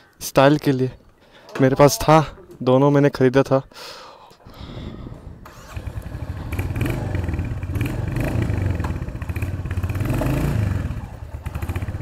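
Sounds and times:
motorcycle engine starting and idling: 5.4 - 12.0.

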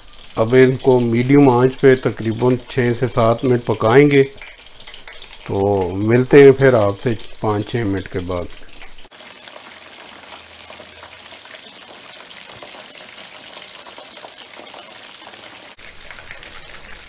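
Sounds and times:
food deep-frying in hot oil: 0.0 - 17.0.

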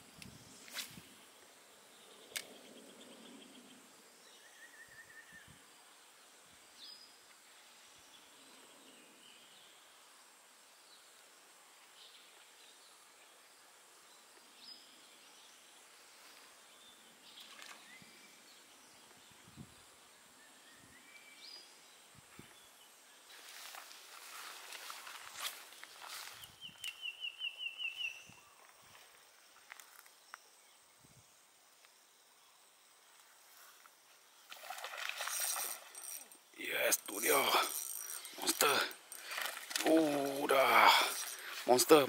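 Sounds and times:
bird chirps: 26.3 - 28.7.

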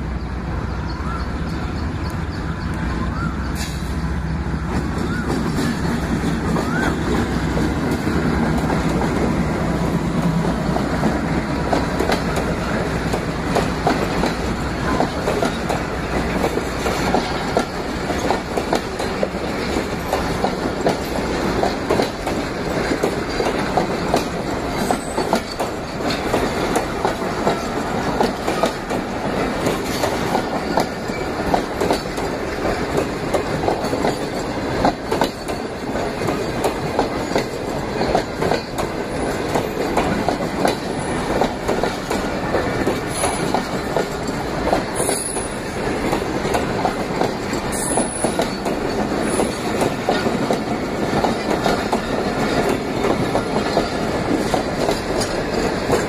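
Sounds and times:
diesel locomotive engine: 0.0 - 56.0
train wheels clickety-clack: 0.0 - 56.0.

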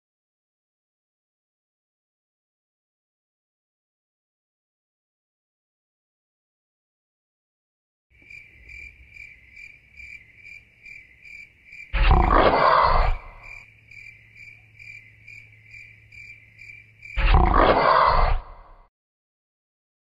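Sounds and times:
dinosaur roar: 11.9 - 13.6, 17.2 - 18.9.

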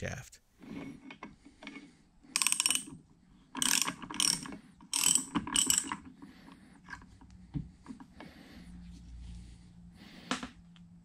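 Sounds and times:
ratchet wrench clicking: 2.4 - 3.0, 3.6 - 6.1.

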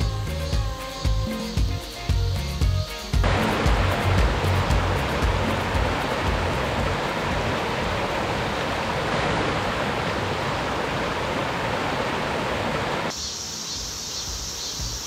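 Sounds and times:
thin hiss: 0.0 - 6.6, 13.1 - 15.0
stream rushing over rocks: 3.2 - 13.1.

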